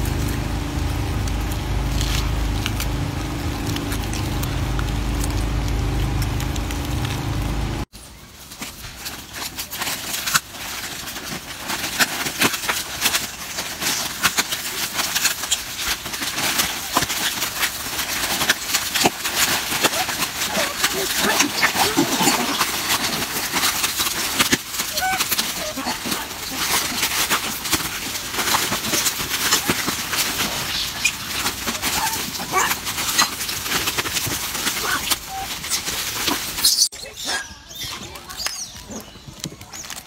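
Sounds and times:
low rumble: 0:00.0 - 0:07.9
plastic wrappers crinkling: 0:00.0 - 0:40.0.

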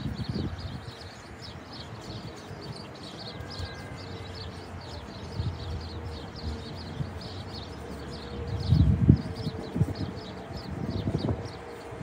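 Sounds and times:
small birds chirping: 0:00.0 - 0:12.0
wind rumble on microphone: 0:00.0 - 0:12.0
electric train hum: 0:04.0 - 0:12.0.

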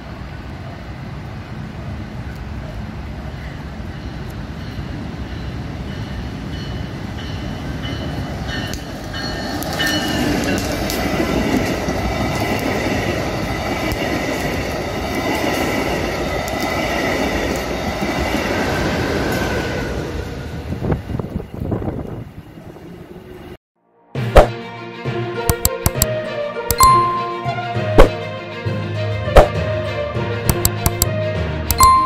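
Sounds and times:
train wheels on rails: 0:00.0 - 0:23.6
crossing bell dinging: 0:03.4 - 0:11.2, 0:26.7 - 0:27.6, 0:31.7 - 0:32.0.

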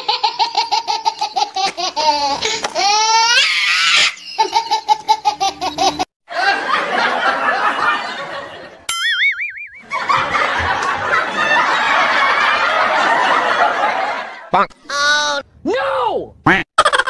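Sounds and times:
belly laughter: 0:00.0 - 0:03.4, 0:04.0 - 0:08.8, 0:09.8 - 0:14.5, 0:16.8 - 0:17.0
dense laughter: 0:04.4 - 0:08.8, 0:09.8 - 0:14.5.

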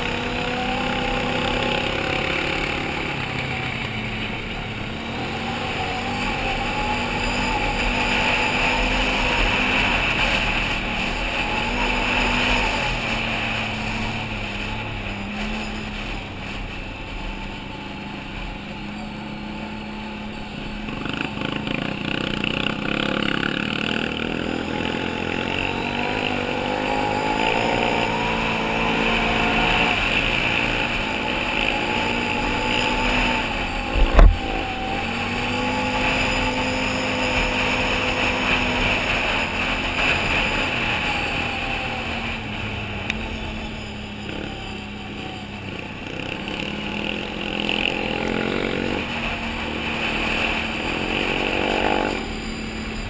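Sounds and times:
atv engine revving: 0:00.0 - 0:53.0
sharp knock: 0:33.9 - 0:34.6.

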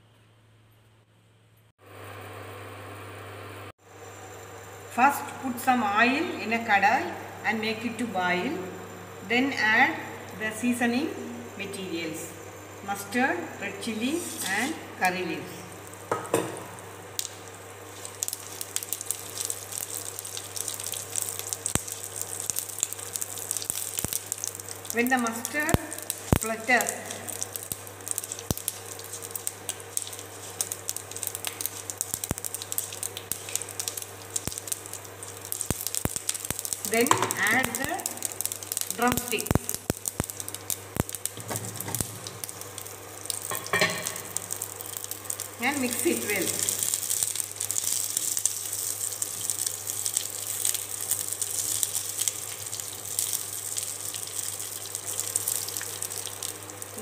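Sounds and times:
low steady hum: 0:00.0 - 0:57.0
spices sizzling in hot oil: 0:03.9 - 0:57.0
mustard seeds popping: 0:17.1 - 0:57.0
spatula stirring: 0:27.4 - 0:37.2.

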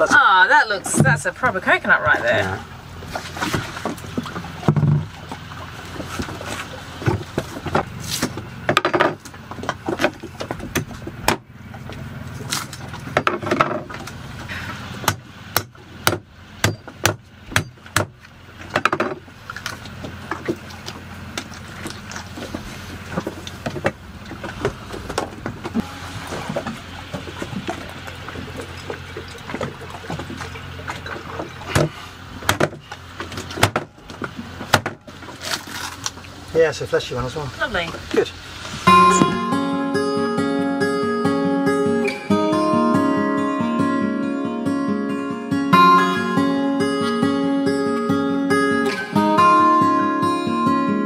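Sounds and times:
machete chopping coconut: 0:15.0 - 0:18.2.

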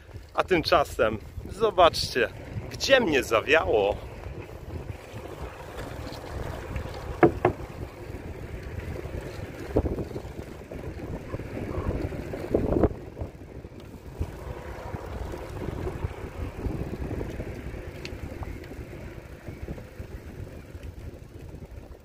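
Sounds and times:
bicycle rolling on wooden boards: 0:00.0 - 0:22.0
wind buffeting microphone: 0:00.0 - 0:22.0
sharp knocks and rattles: 0:05.7 - 0:08.0.

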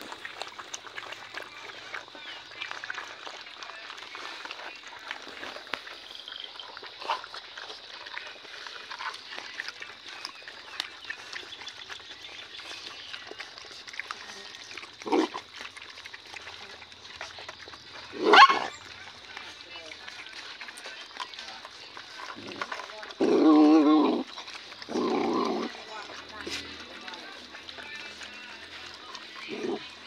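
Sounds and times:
dogs chewing and lapping: 0:00.0 - 0:30.0
dog sound: 0:12.8 - 0:21.4.

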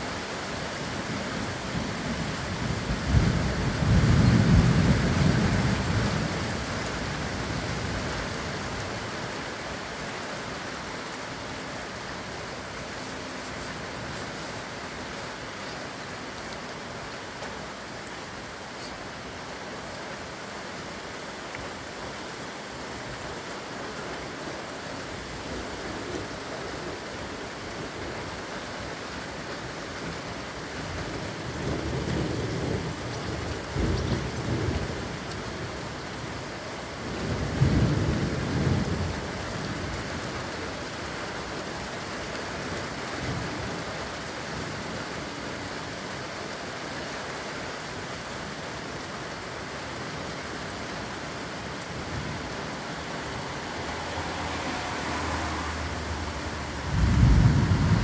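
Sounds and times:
steady rain: 0:00.0 - 0:58.0
thunder rumbling: 0:02.2 - 0:06.7, 0:31.1 - 0:35.3, 0:53.2 - 0:58.0.

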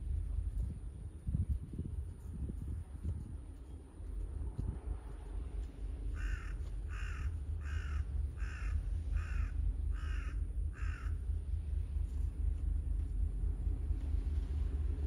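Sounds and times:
low rumble: 0:00.0 - 0:15.0
crow cawing: 0:06.1 - 0:11.2.

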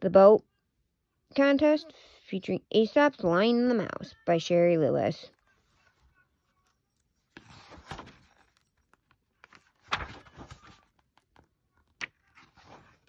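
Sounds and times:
book pages turning: 0:05.3 - 0:13.0.

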